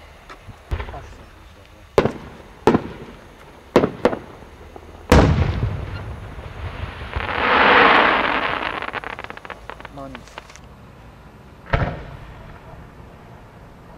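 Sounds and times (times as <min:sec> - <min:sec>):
firework crackling: 0:00.0 - 0:10.8
firework pops: 0:00.7 - 0:04.3, 0:05.1 - 0:10.7, 0:11.7 - 0:12.7
firework boom: 0:05.1 - 0:10.6.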